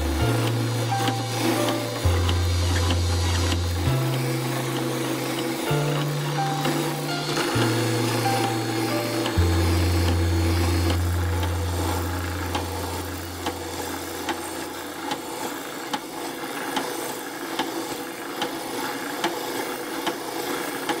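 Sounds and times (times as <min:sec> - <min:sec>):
deep hum: 0:00.0 - 0:15.1
sanding drum rasping on plywood: 0:00.0 - 0:21.0.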